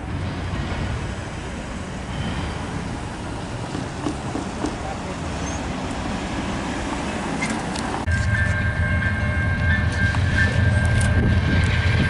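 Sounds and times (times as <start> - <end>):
diesel locomotive engine rumble: 0.0 - 12.0
road traffic noise: 0.0 - 12.0
steady high tone: 8.0 - 12.0.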